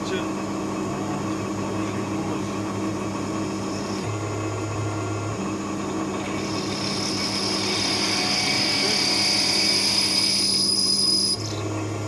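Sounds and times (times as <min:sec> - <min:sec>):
milling machine hum: 0:00.0 - 0:12.0
metal cutting hiss: 0:06.4 - 0:11.4.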